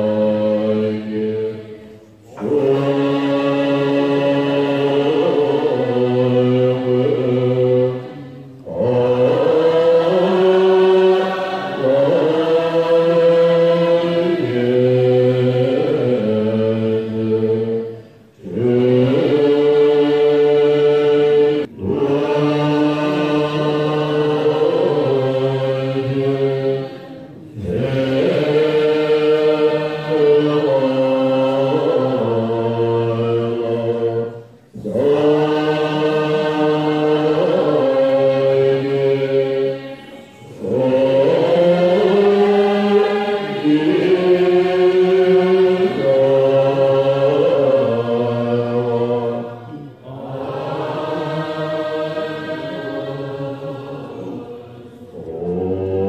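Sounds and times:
monks and nuns chanting in unison: 0.0s - 56.0s.

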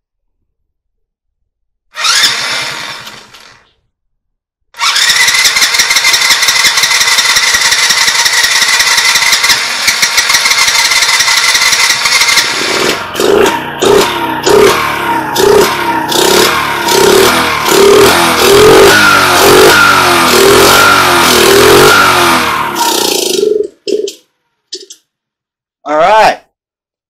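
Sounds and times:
small engine whining: 1.9s - 3.7s, 4.8s - 23.6s.

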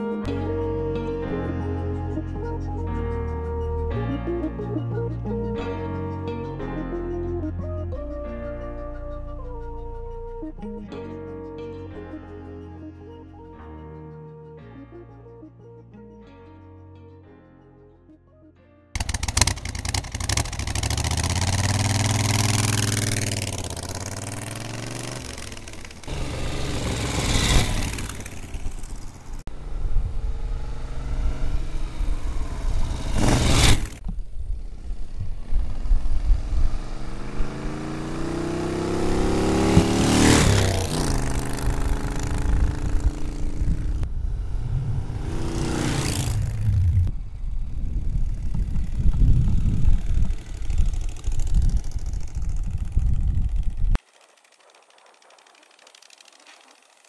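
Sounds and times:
motorcycle engine revving: 19.0s - 57.0s
motorcycle passing by: 19.0s - 57.0s.

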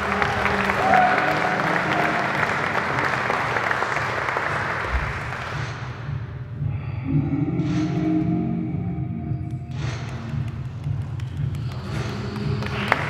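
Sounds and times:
audience applauding: 0.0s - 5.8s, 10.4s - 13.0s.

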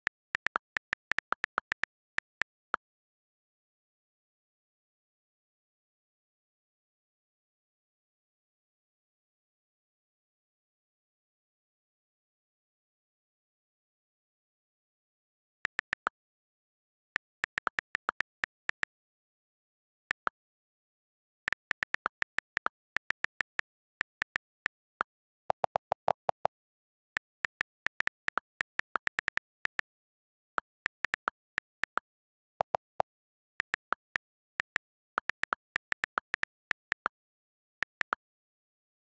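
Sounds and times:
on-screen keyboard clicks: 0.0s - 2.8s, 15.7s - 16.2s, 17.1s - 18.9s, 20.1s - 20.4s, 21.5s - 26.6s, 27.2s - 38.2s.

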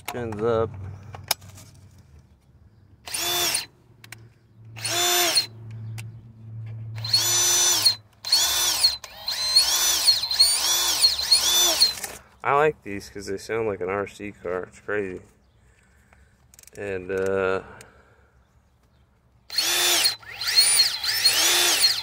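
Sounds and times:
cordless drill whining: 3.1s - 3.7s, 4.8s - 5.5s, 7.0s - 12.2s, 19.5s - 22.0s.

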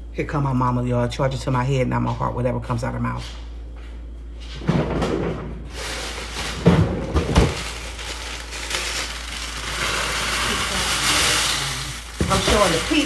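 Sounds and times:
plastic bag of ice rustling: 5.7s - 13.0s.

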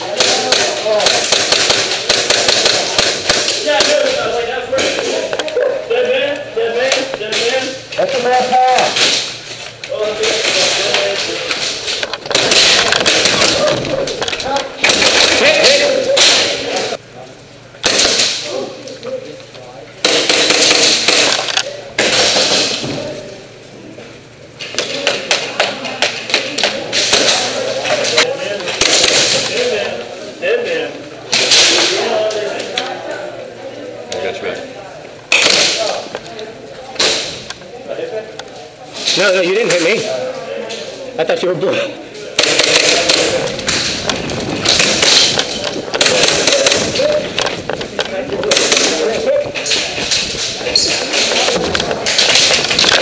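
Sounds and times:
airsoft gunfire: 0.0s - 4.2s, 12.3s - 13.8s, 14.8s - 16.6s, 17.8s - 18.4s, 20.0s - 22.8s, 28.8s - 29.6s, 35.3s - 36.0s, 42.4s - 47.5s, 48.4s - 49.1s.

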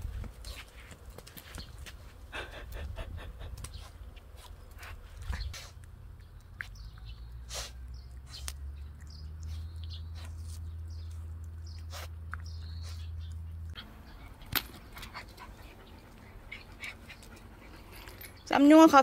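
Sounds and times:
puppy sniffing and snuffling: 2.3s - 5.9s, 6.6s - 18.5s
bird chirps: 6.1s - 15.2s.

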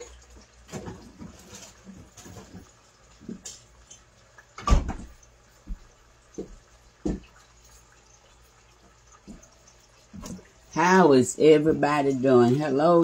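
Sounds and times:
refrigerator door thudding shut: 4.6s - 5.1s.

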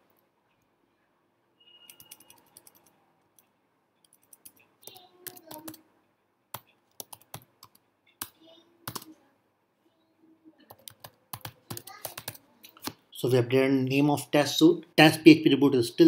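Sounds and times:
computer keyboard typing: 1.9s - 5.8s, 6.5s - 9.1s, 10.7s - 13.0s.

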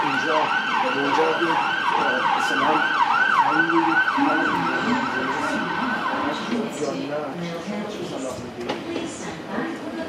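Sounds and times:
siren yelping: 0.0s - 7.1s.

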